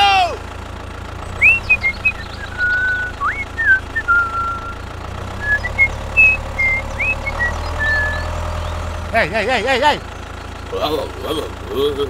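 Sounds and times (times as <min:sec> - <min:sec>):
low engine-like rumble: 0:00.0 - 0:12.0
short whistled notes: 0:01.4 - 0:04.8, 0:05.4 - 0:08.3.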